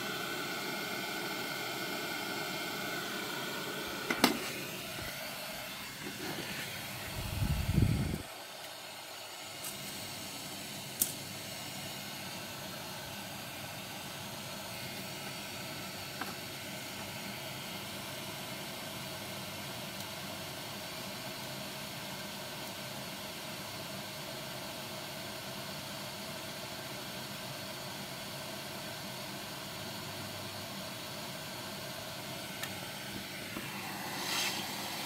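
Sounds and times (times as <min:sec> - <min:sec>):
hot-air gun hissing: 0:00.0 - 0:17.4, 0:32.3 - 0:35.0.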